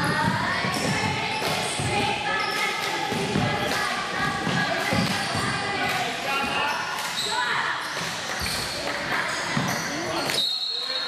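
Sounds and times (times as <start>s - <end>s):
shoe squeaks: 0.0s - 1.4s, 6.3s - 11.0s
basketball bouncing on court: 0.0s - 9.9s
crowd noise: 0.0s - 11.0s.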